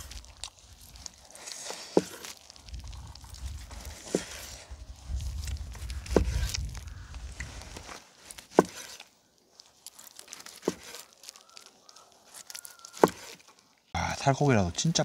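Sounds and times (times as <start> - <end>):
meat tearing and scraping: 0.0 - 13.8.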